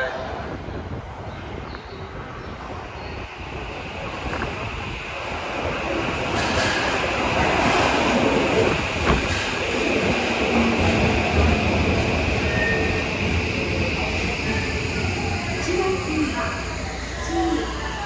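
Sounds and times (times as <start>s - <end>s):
subway train rumble: 0.0s - 18.0s
high squeal of wheels: 12.4s - 13.2s.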